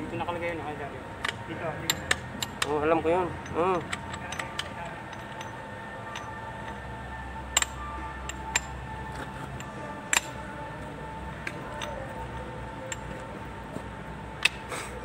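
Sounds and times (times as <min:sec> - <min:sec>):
faint background music: 0:00.0 - 0:15.0
sharp metal clicks: 0:01.2 - 0:02.8, 0:14.4 - 0:14.7
metal gears clinking: 0:01.2 - 0:06.8, 0:11.4 - 0:13.3.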